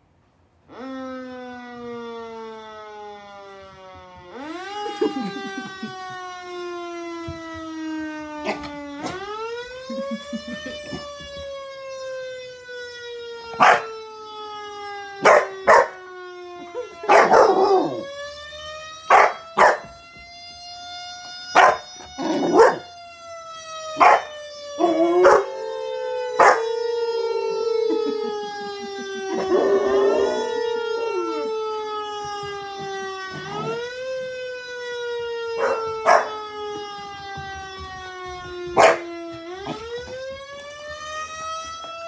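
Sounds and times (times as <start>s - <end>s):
siren wailing: 0.6s - 42.0s
puppy barking: 13.6s - 13.9s, 15.2s - 16.0s, 17.0s - 17.7s, 19.1s - 19.9s, 21.6s - 22.9s, 24.0s - 24.3s, 25.2s - 25.5s, 26.4s - 26.6s, 35.6s - 36.3s, 38.8s - 39.8s
dog howling: 24.8s - 31.6s.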